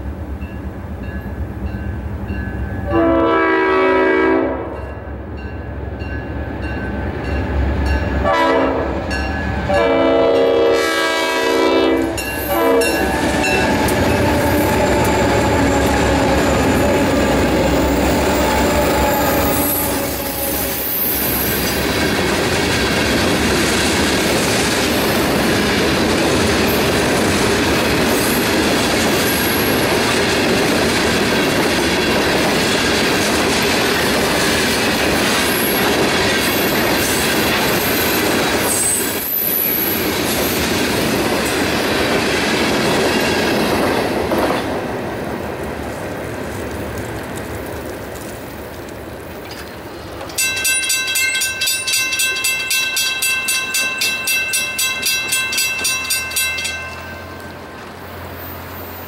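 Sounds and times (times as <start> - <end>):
train wheel noise: 0.0 - 59.0
locomotive horn: 2.8 - 4.9, 8.2 - 21.5
high wheel squeal: 12.3 - 21.8, 58.1 - 59.0
wheels clacking over rail joints: 45.6 - 58.3.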